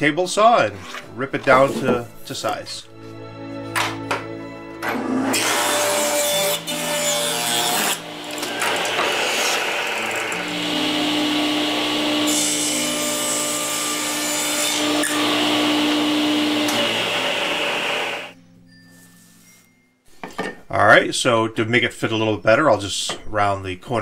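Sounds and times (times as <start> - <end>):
table saw ripping wood: 4.8 - 18.3.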